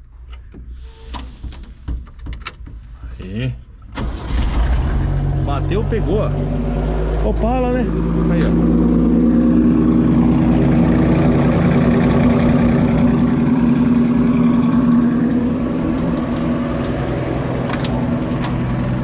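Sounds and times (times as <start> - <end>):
car engine idling: 4.0 - 19.0.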